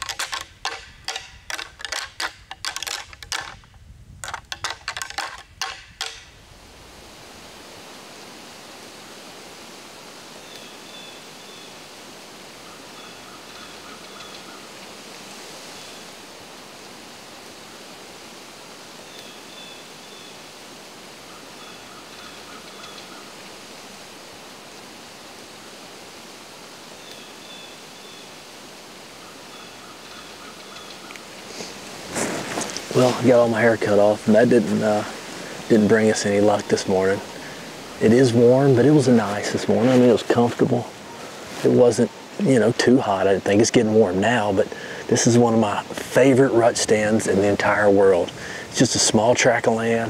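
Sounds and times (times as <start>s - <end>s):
woodland hiss: 0.0s - 50.0s
faint bird calls: 12.6s - 14.9s, 21.2s - 23.4s, 29.1s - 31.8s, 40.9s - 42.5s.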